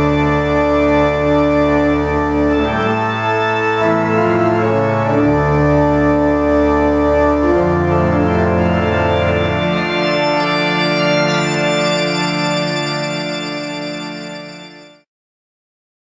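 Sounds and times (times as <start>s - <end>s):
pipe organ playing slow chords: 0.0s - 15.0s.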